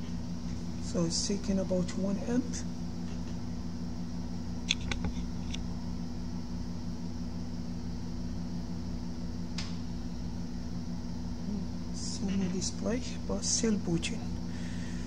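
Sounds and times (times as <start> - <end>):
electric fan hum: 0.0 - 15.0.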